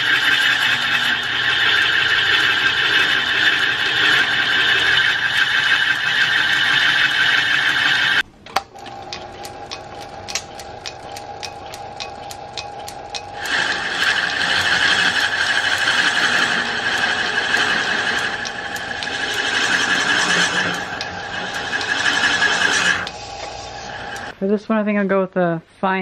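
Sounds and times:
lathe cutting wood squeal: 0:00.0 - 0:08.2, 0:13.4 - 0:24.3
lathe motor whine: 0:00.0 - 0:24.4
regular ticking: 0:08.6 - 0:23.2.

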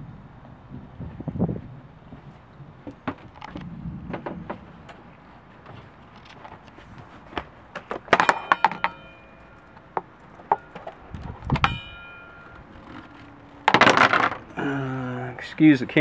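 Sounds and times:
metallic knocks on steel wheel: 0:08.1 - 0:10.9, 0:11.6 - 0:12.5.

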